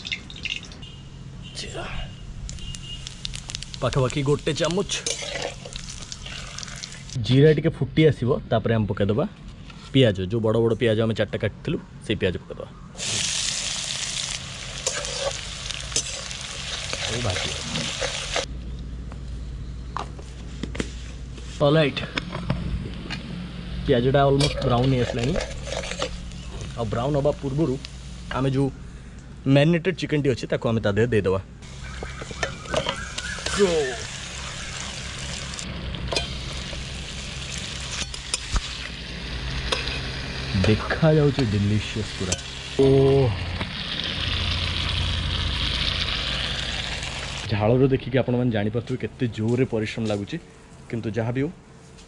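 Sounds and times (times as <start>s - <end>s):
onions sizzling in oil: 2.5s - 7.2s, 13.0s - 18.5s, 25.0s - 28.5s, 31.6s - 47.5s
metal spatula scraping pan: 4.9s - 6.5s, 14.8s - 16.3s, 24.4s - 26.2s.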